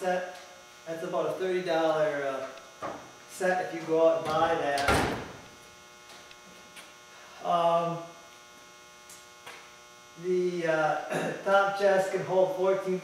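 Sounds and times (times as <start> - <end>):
man speaking: 0.0 - 2.6, 3.3 - 5.0, 7.4 - 8.1, 10.2 - 13.0
electrical mains hum: 0.0 - 13.0.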